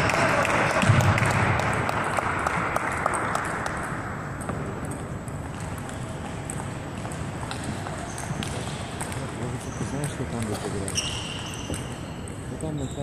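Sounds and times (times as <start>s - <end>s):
spectators applauding: 0.0s - 3.9s
table tennis balls bouncing: 0.0s - 13.0s.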